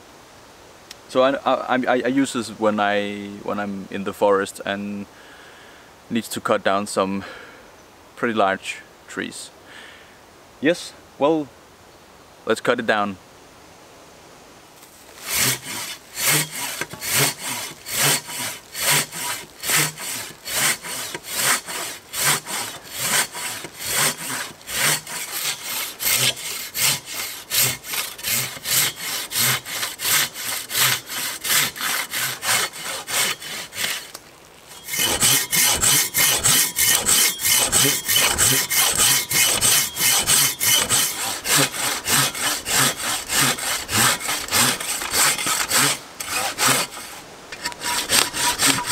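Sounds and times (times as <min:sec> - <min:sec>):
hand saw cutting wood: 0:15.2 - 0:48.9.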